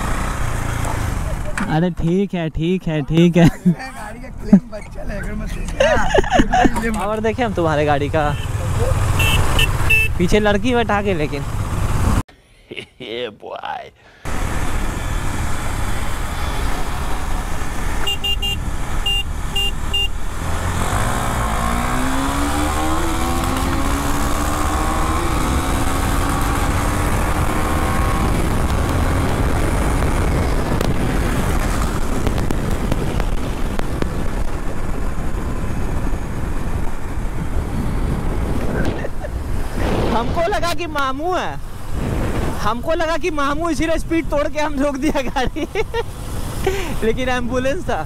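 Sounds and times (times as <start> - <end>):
road and wind noise: 0.0 - 48.0
short horn beeps: 9.2 - 10.2, 18.1 - 20.1.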